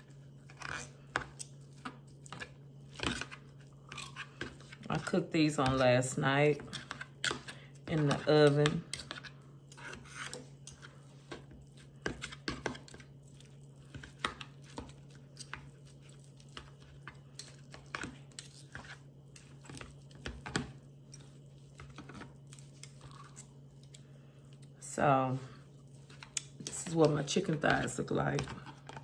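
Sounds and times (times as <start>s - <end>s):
knife and fork cutting chicken: 0.0s - 24.1s.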